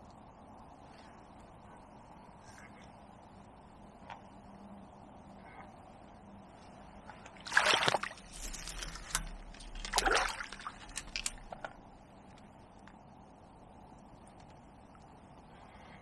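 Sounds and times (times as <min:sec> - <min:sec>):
water splashing and sloshing: 0:07.0 - 0:12.2.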